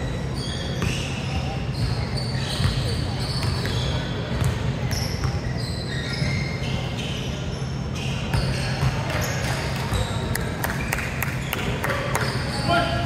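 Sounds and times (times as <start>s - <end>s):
sneaker squeaks: 0.0s - 13.0s
basketball bouncing on court: 0.8s - 5.6s, 8.3s - 10.2s.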